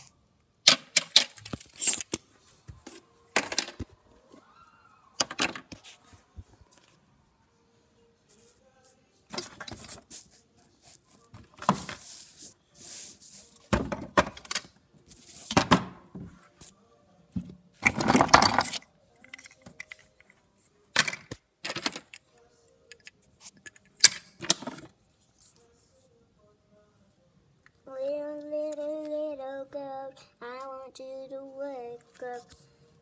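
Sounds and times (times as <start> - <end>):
rustling and plastic clattering: 0.8 - 4.0, 17.8 - 20.1.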